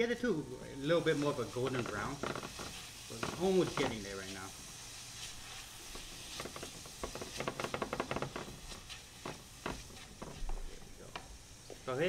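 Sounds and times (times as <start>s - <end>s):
aromatics sizzling in hot oil: 0.0s - 12.0s.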